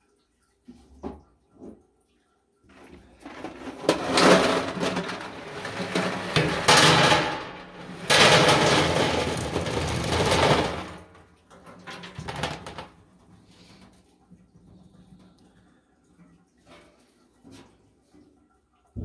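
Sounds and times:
hard candies clattering into a sink: 2.8s - 13.0s.

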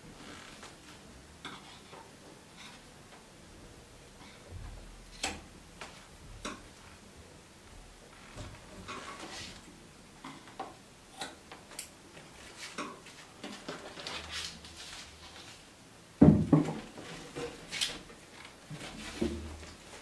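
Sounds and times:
heavy wooden thump: 16.2s - 16.8s.

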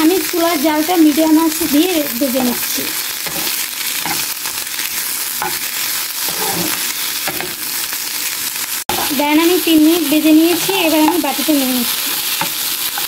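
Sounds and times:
corn sizzling in a frying pan: 0.0s - 13.0s
metal spatula scraping a pan: 2.4s - 4.7s, 5.4s - 7.6s.

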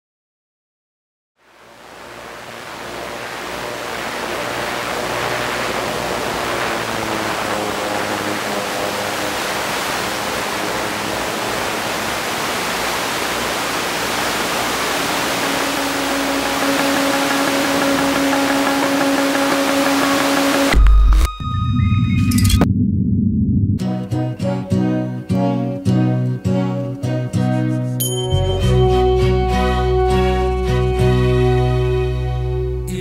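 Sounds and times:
steady rushing hiss: 1.4s - 20.8s.

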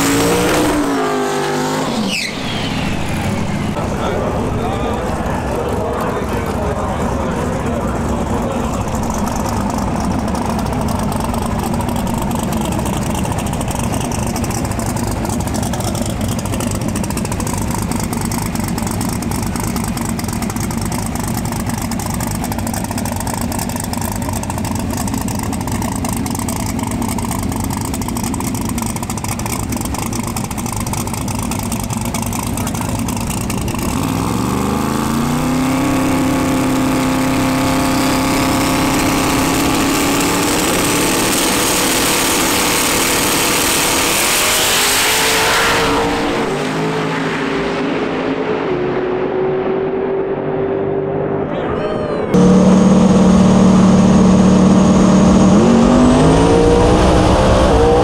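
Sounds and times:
drag car engine revving: 0.0s - 58.0s.

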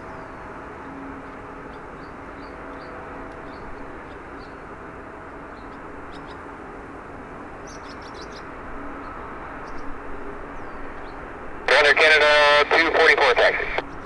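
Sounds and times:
distant airport rumble: 0.0s - 14.0s
small birds chirping: 7.6s - 11.2s.

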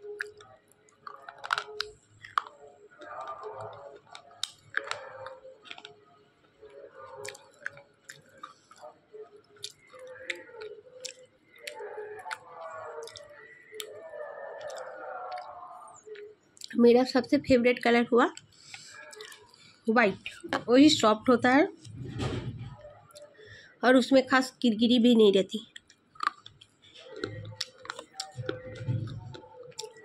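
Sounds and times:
gritty chewing: 0.0s - 16.8s, 18.3s - 20.5s, 25.6s - 30.0s
slate pencil cracking between teeth: 1.1s - 6.0s.

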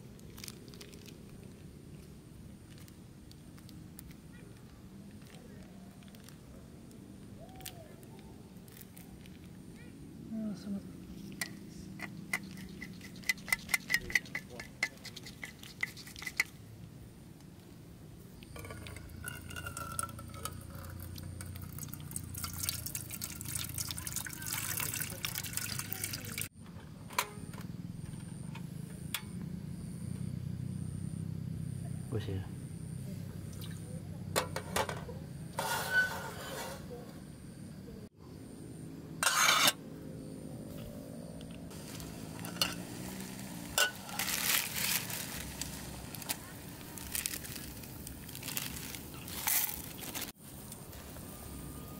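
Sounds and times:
utensil clinking on a plate: 18.6s - 21.7s
metal pot clinking on grate: 18.6s - 23.8s, 35.6s - 36.9s, 42.4s - 42.9s, 43.7s - 44.6s
water pouring into a metal pot: 18.6s - 26.5s
gas stove hiss: 41.7s - 47.1s.

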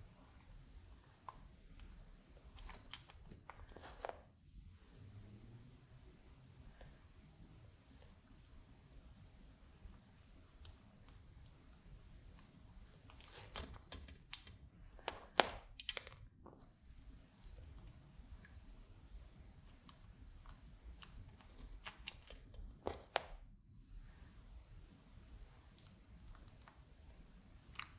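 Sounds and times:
resistors clicking into circuit board: 13.4s - 16.2s.

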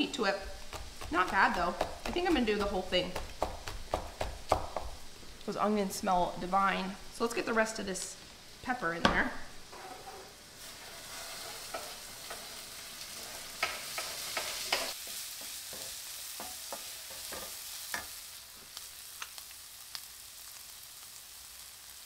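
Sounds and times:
onions sizzling in skillet: 0.0s - 22.0s
wooden spatula tapping pan: 0.5s - 5.0s.

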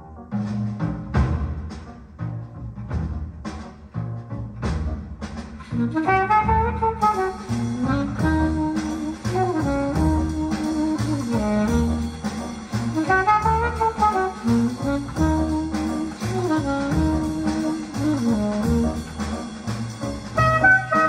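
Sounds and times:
bass notes: 0.0s - 21.0s
jazz over loudspeakers: 0.0s - 21.0s
saxophone melody: 5.8s - 19.4s, 20.4s - 21.0s.

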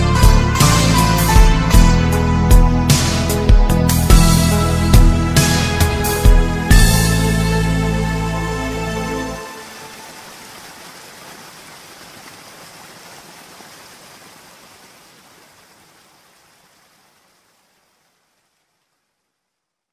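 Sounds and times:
music: 0.0s - 10.1s
hiss of falling rain: 8.2s - 19.9s.

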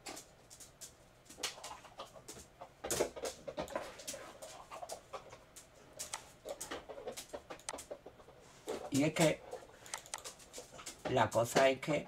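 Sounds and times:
computer mouse clicking and scrolling: 6.0s - 8.0s, 8.7s - 11.7s.

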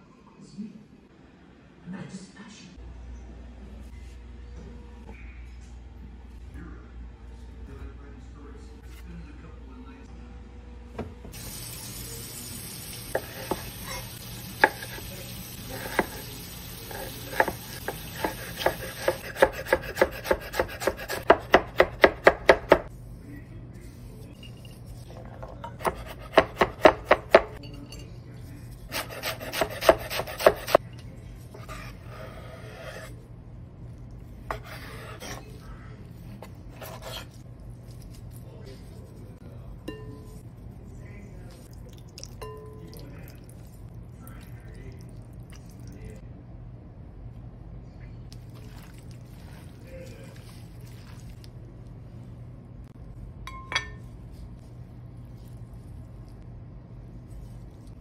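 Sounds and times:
knife chopping on wooden board: 14.6s - 15.0s, 16.9s - 22.9s, 25.7s - 27.6s, 28.9s - 30.8s.

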